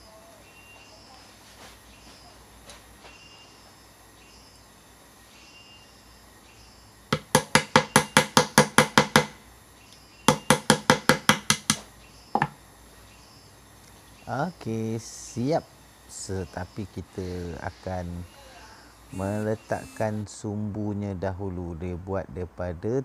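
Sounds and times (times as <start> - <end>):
rapid tapping on metal: 7.1 - 9.4, 10.3 - 11.8.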